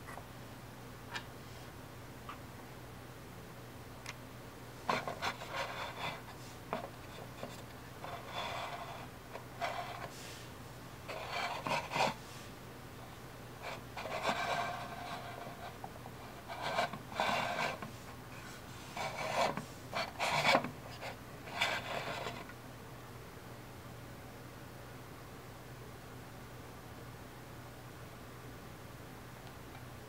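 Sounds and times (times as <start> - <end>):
plastic base scraping on wood: 4.9 - 10.2, 11.1 - 12.2, 13.7 - 17.9, 19.0 - 22.5.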